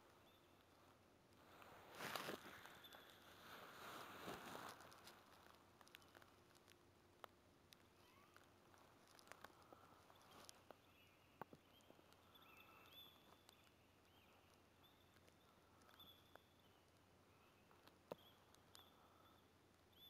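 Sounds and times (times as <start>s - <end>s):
soft high chirps: 0.1s - 4.8s, 9.3s - 20.0s.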